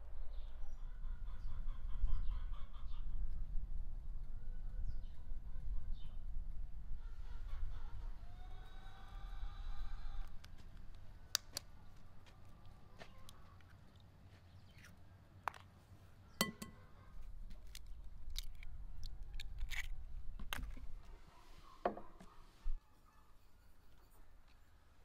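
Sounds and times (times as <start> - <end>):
eggs cracking on glass bowl: 17.6 - 20.6.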